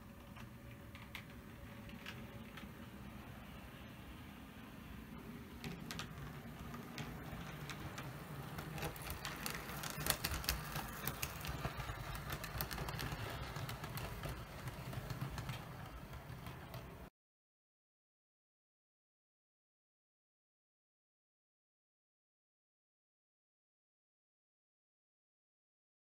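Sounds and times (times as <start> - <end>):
wheels clicking over rails: 0.0 - 17.1
model train motor hum: 5.9 - 16.8.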